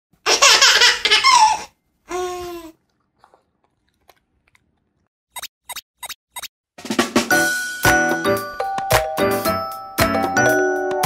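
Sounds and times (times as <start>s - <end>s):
quick high blips: 5.3s - 6.5s.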